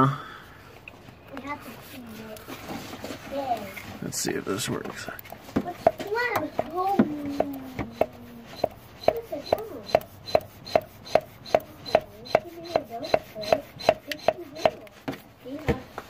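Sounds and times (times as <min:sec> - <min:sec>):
hand air pump clicking: 0:05.2 - 0:14.8.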